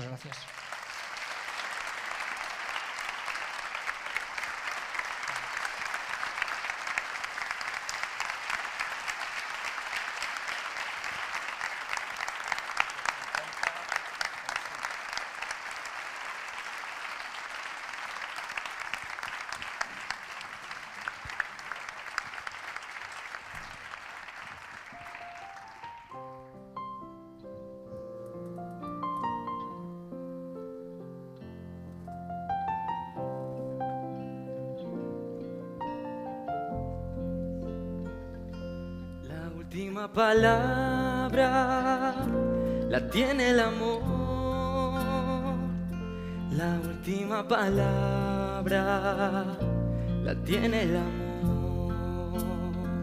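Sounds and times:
audience applauding: 0.0s - 26.6s.

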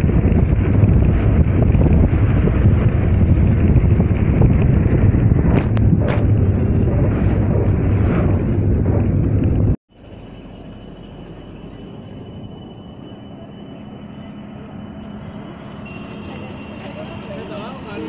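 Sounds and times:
road and wind rumble in car: 0.0s - 10.6s
faint high tone: 10.1s - 17.4s.

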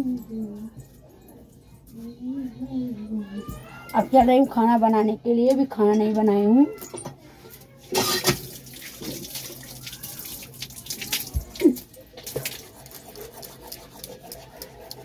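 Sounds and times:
water splashing and dripping: 7.9s - 15.0s.

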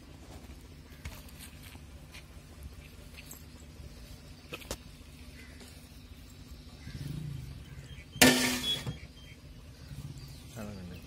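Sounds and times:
metal pot lid clattering: 8.2s - 8.9s.

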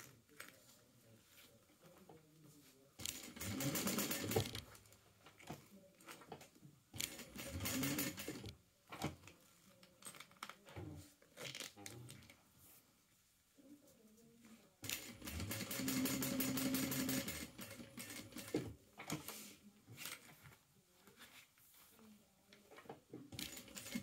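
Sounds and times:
sewing machine stitching: 3.0s - 4.7s, 7.0s - 8.5s, 14.8s - 19.3s, 23.3s - 24.0s.

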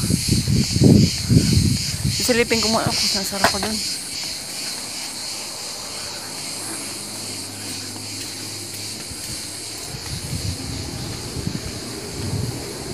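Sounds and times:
high-pitched insect chorus: 0.0s - 12.9s
low rumbling on microphone: 8.9s - 12.9s.

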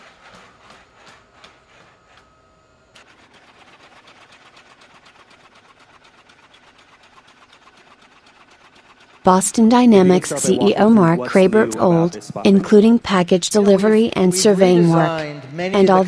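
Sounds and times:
fast mechanical ticking: 3.0s - 9.6s.

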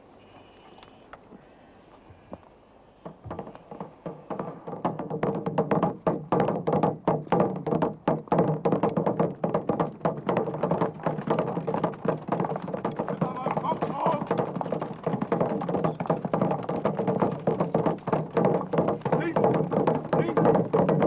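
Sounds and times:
field drum fast strokes: 3.1s - 21.0s.

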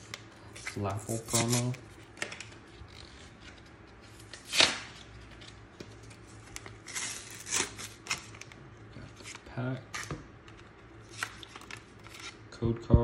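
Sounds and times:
paper rustling and crinkling: 0.0s - 10.2s, 11.0s - 12.4s
packaging tearing: 6.4s - 8.6s.

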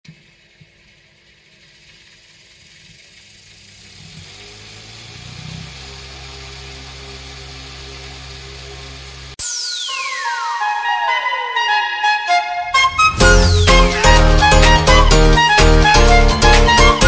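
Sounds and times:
propeller fan whirring: 4.1s - 10.7s.

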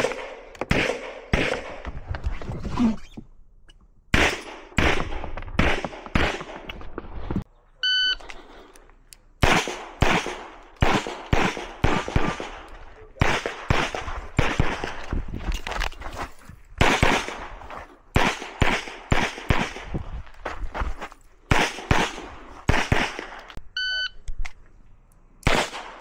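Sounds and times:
rapid pistol shots: 0.0s - 1.8s, 4.1s - 6.7s, 9.4s - 15.0s, 16.8s - 17.6s, 18.2s - 19.9s, 21.5s - 23.4s, 25.4s - 26.0s
short electronic beep: 7.8s - 8.2s, 23.8s - 24.2s.

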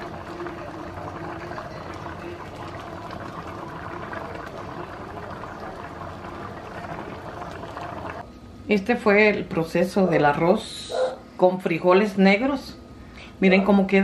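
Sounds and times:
beans simmering bubbling: 0.0s - 8.3s.

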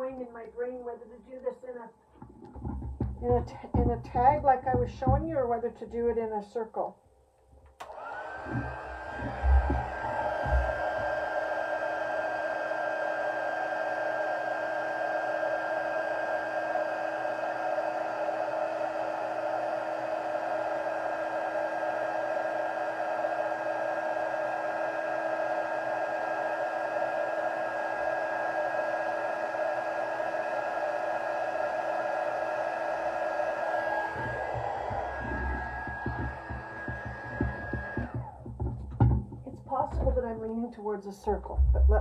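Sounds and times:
heat tool blowing and whining: 7.8s - 40.6s.

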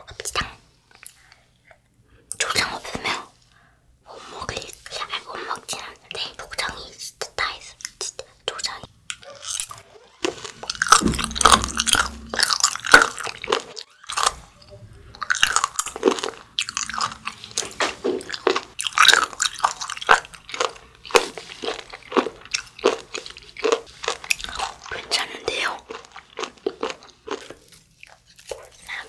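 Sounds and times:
person chewing with sharp crunches: 7.6s - 29.0s.

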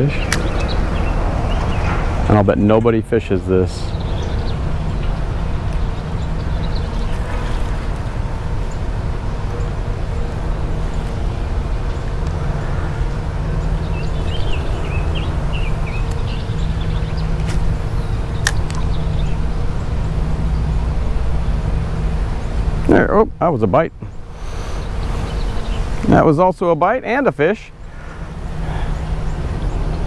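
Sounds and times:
road traffic rumble: 0.0s - 30.0s
sharp click: 0.3s - 0.7s, 18.4s - 18.8s.

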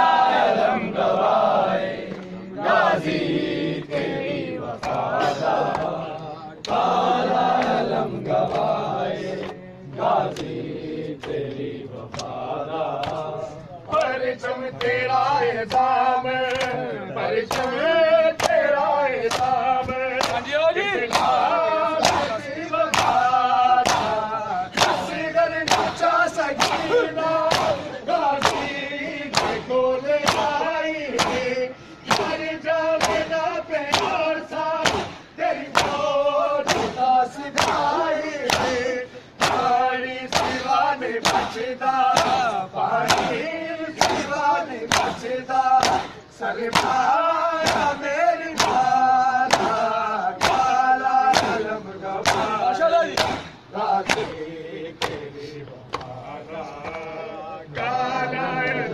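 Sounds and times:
men chanting in unison: 0.0s - 58.9s
hand slaps on chests: 4.8s - 6.9s, 10.3s - 10.6s, 13.0s - 13.3s, 15.7s - 16.8s, 17.5s - 17.8s, 18.4s - 20.5s, 21.1s - 24.2s, 24.8s - 26.9s, 27.5s - 32.4s, 33.0s - 54.4s, 55.0s - 55.2s.

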